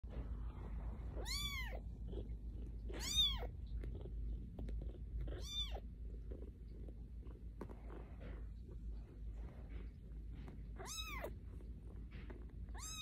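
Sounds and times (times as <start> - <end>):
kitten meowing: 1.2 - 1.8, 2.9 - 3.5, 5.3 - 5.8, 10.8 - 11.3, 12.7 - 13.0.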